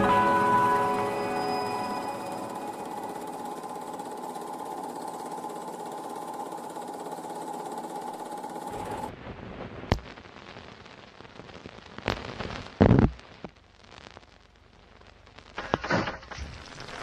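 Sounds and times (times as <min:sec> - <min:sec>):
mechanical whirring clatter: 0:00.0 - 0:09.1
constant hum: 0:00.0 - 0:10.2.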